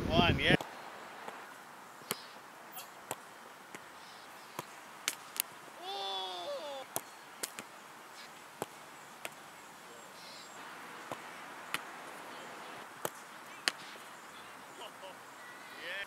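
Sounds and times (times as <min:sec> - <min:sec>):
footballs being struck and landing: 0:03.0 - 0:03.9, 0:04.5 - 0:05.6, 0:06.9 - 0:07.8, 0:08.6 - 0:09.4, 0:11.0 - 0:12.2, 0:12.9 - 0:14.1.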